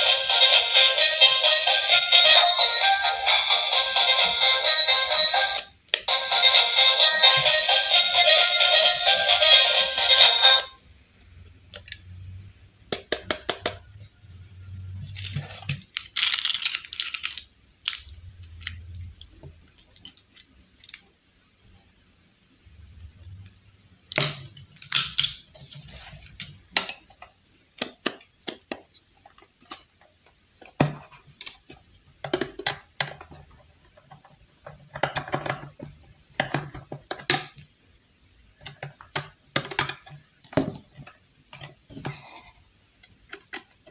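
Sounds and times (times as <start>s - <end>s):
plastic toy pieces clicking: 15.9s - 18.8s, 19.7s - 21.1s.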